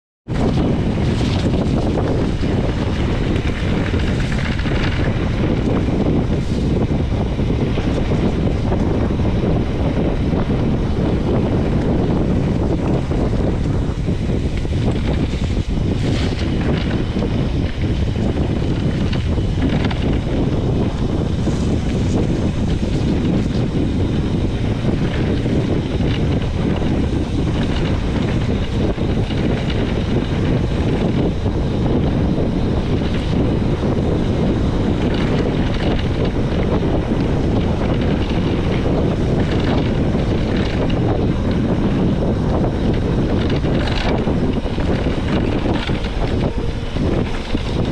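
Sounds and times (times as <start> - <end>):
wind buffeting microphone: 0.2 - 47.9
tyres rolling over dirt: 0.3 - 8.9
short rattles: 42.6 - 47.9.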